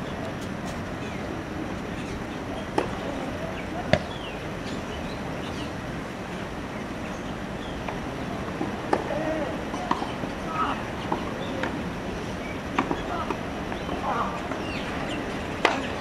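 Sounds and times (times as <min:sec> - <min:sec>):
outdoor background hiss: 0:00.0 - 0:16.0.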